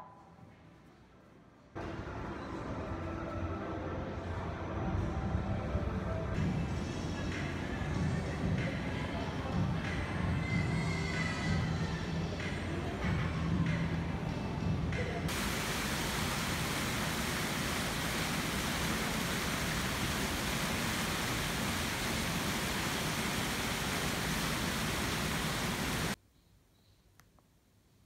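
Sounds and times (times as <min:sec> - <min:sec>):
water cascading down fountain: 0:15.3 - 0:26.2.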